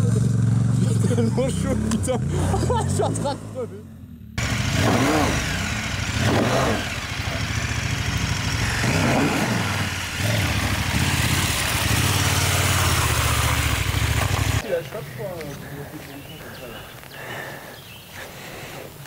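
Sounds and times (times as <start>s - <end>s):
motorcycle engine revving: 0.0s - 14.6s.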